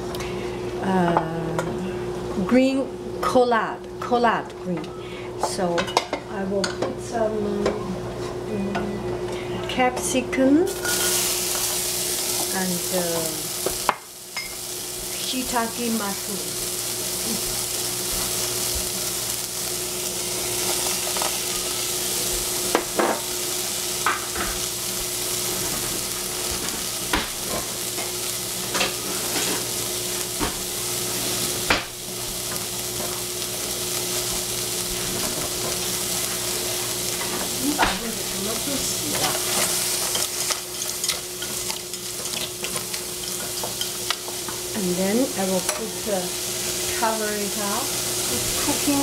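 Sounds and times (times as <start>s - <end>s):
vegetables sizzling in a saucepan: 10.1s - 49.0s.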